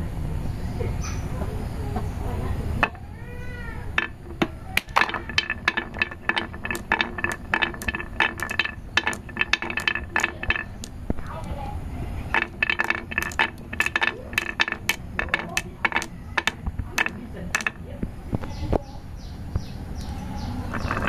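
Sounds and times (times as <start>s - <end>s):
marbles clicking together: 4.0s - 11.6s, 12.3s - 17.8s
marbles rolling on wooden track: 4.0s - 11.6s, 12.3s - 17.8s, 20.7s - 21.0s.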